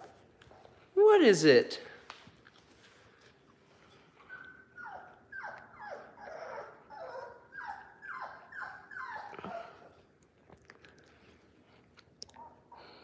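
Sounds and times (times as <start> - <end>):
puppy whining: 3.9 - 10.2, 12.2 - 13.0.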